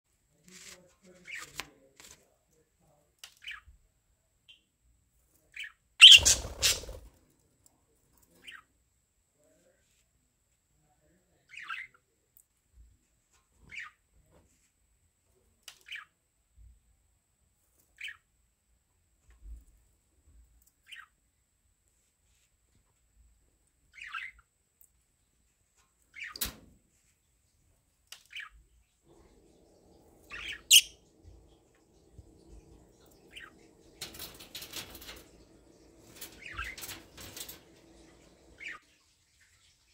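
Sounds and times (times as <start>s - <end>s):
budgerigars chirping: 6.0s - 6.9s, 30.3s - 31.1s
budgerigars chirping and squawking: 6.0s - 7.0s, 30.2s - 31.1s, 32.9s - 38.8s.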